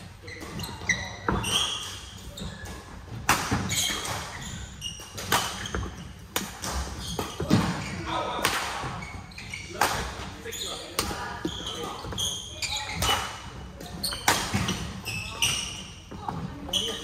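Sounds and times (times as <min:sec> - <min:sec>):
shoes squeaking on court: 0:00.0 - 0:08.2, 0:08.8 - 0:17.0
racket hitting shuttlecock: 0:01.3 - 0:09.0.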